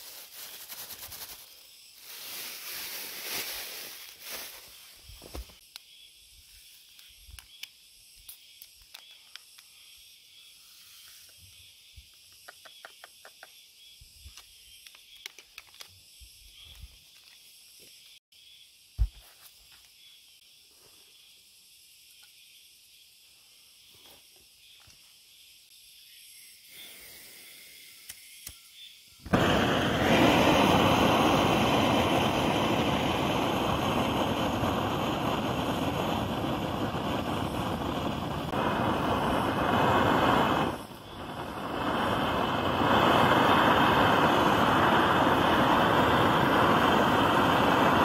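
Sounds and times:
plastic bag crinkling: 0:00.0 - 0:04.8
steady high hiss: 0:00.0 - 0:48.0.

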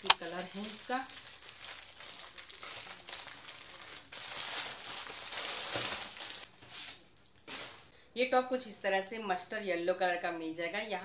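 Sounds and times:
plastic bag crinkling and rustling: 0:00.0 - 0:07.9.

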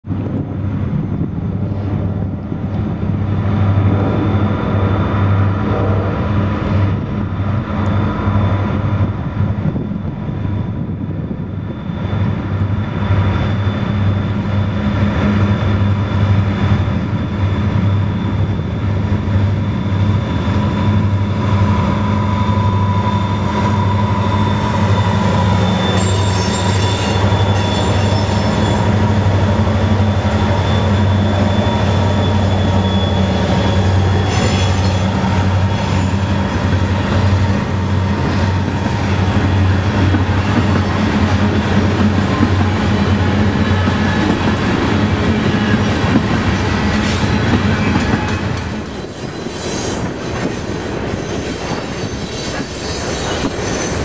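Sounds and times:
diesel locomotive engine drone: 0:00.0 - 0:54.0
thin high tone: 0:20.3 - 0:29.2.

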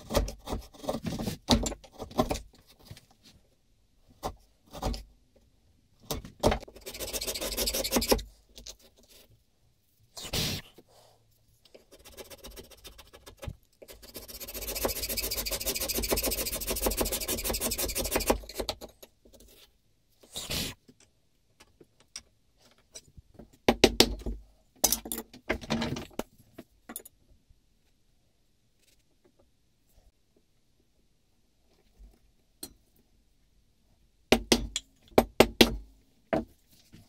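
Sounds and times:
hand tool scraping wood: 0:11.9 - 0:18.6.

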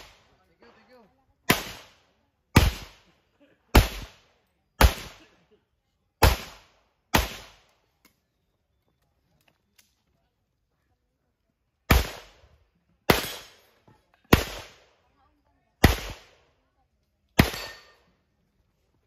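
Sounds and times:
pistol shots: 0:01.4 - 0:03.1, 0:03.7 - 0:04.2, 0:04.8 - 0:05.3, 0:06.2 - 0:07.7, 0:11.9 - 0:12.4, 0:13.0 - 0:13.7, 0:14.3 - 0:14.9, 0:15.8 - 0:16.4, 0:17.4 - 0:18.0.

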